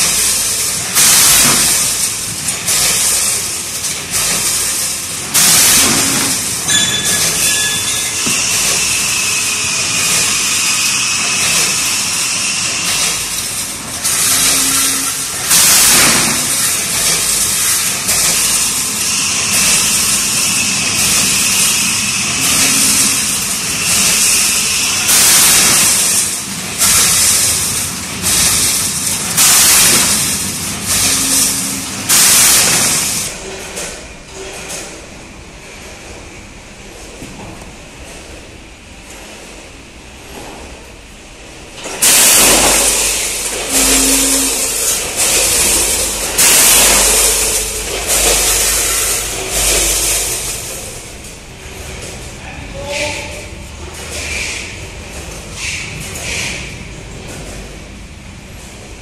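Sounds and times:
metal springs clattering: 0.0s - 12.0s, 41.8s - 53.1s.

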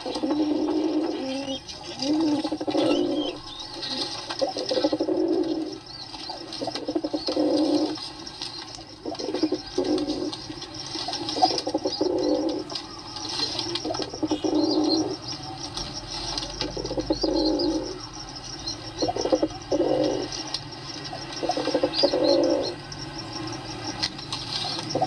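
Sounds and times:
pigeons cooing: 0.0s - 25.0s
small birds chirping: 0.0s - 25.0s.

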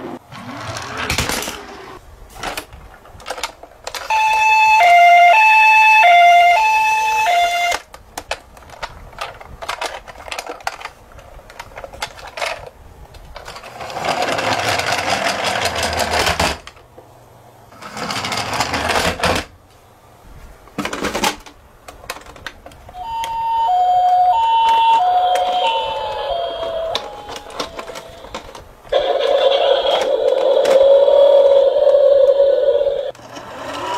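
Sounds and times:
toy car rolling on wood: 0.1s - 5.1s, 13.3s - 16.8s, 17.7s - 19.5s, 24.5s - 33.9s
plastic toy clicks and rattles: 2.4s - 4.1s, 7.7s - 12.7s, 26.9s - 31.1s
toy two-tone siren: 4.1s - 7.8s, 23.0s - 28.4s.

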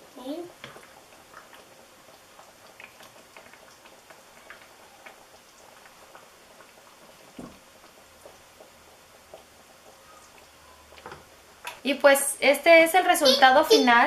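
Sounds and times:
soft thump: 7.4s - 7.6s.

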